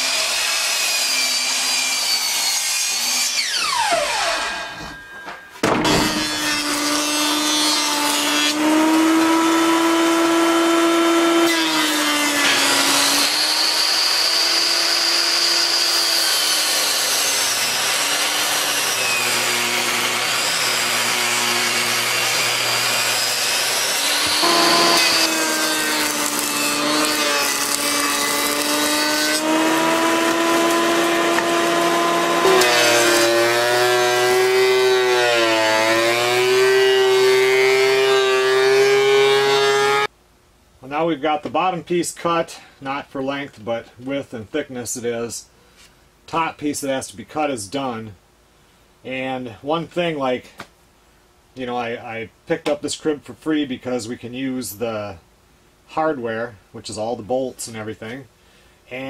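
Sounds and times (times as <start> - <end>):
power tool motor hum: 12.5 - 40.0.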